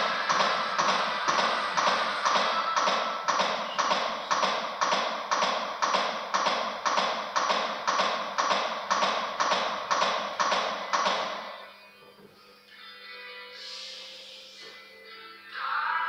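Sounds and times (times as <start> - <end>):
sharp taps of chest compressions: 0.3 - 11.5.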